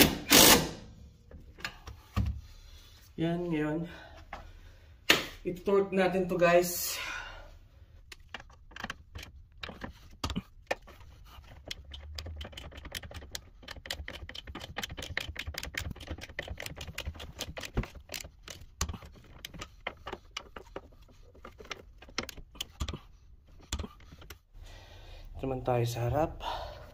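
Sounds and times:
ratchet wrench clicking: 11.6s - 20.8s.

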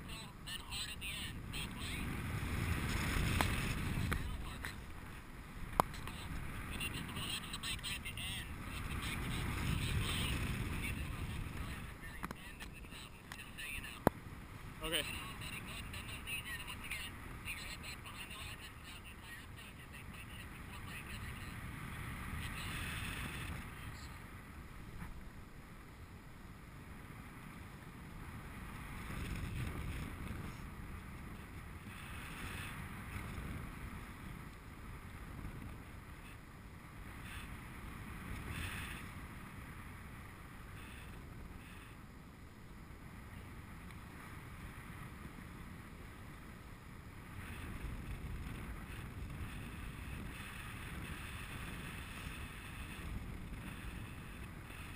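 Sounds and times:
wind rumbling on microphone: 0.0s - 54.9s.

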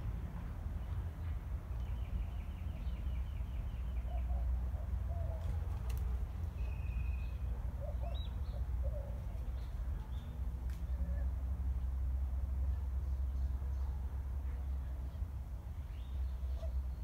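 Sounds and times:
birds chirping: 6.4s - 11.4s
low warbling bird calls: 6.6s - 10.3s, 16.0s - 17.0s.

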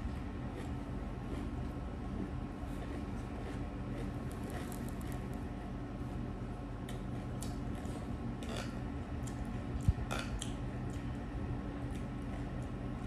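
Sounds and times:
steady low hum: 0.0s - 13.0s
chewing and mouth noises: 0.1s - 1.8s, 2.6s - 5.4s, 6.9s - 11.2s.

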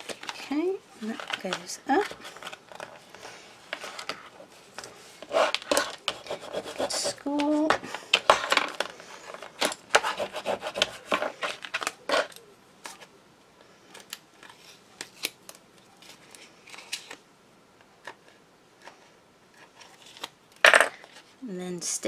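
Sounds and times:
paper rubbing and scraping: 1.0s - 12.4s.

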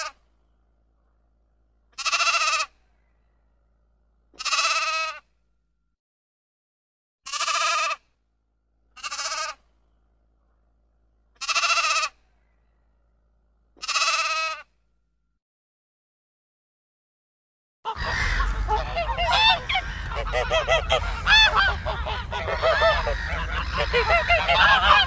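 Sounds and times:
sheep bleating: 2.0s - 2.7s, 4.4s - 5.2s, 9.0s - 9.6s, 11.4s - 12.1s, 13.8s - 14.6s.

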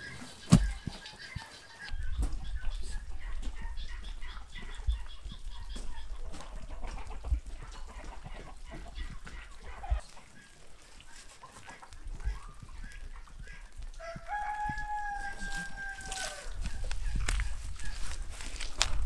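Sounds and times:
chickens clucking: 0.0s - 19.0s
rooster crowing: 14.0s - 16.6s.

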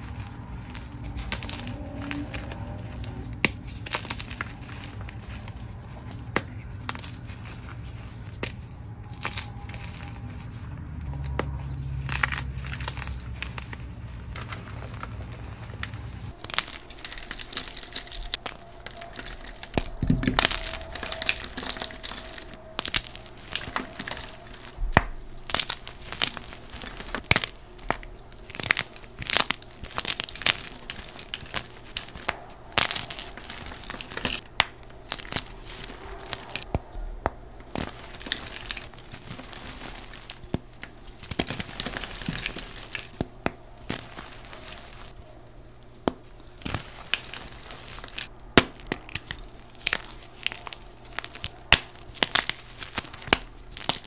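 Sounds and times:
chalk chunks snapping: 0.0s - 10.3s, 16.3s - 54.0s
chalk crunching in hands: 15.4s - 54.0s.

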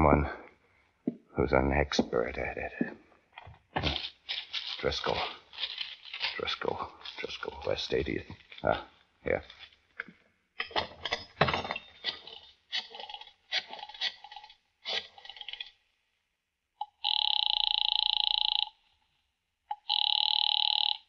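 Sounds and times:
telephone ringing: 16.8s - 18.8s, 19.7s - 21.0s.

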